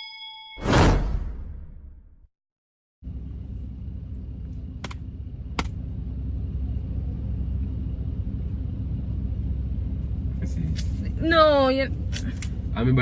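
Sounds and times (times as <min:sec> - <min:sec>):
car idling: 0:03.1 - 0:13.0.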